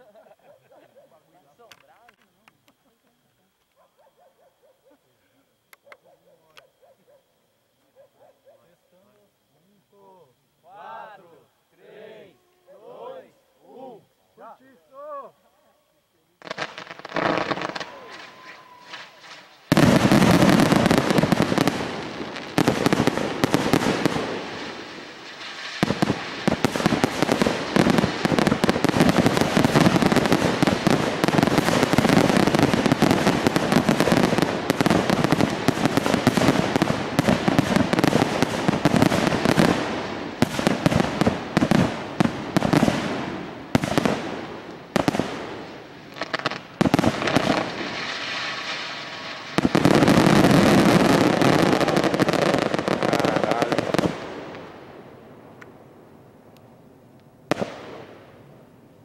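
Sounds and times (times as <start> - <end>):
fireworks bursting and crackling: 16.4 - 58.8.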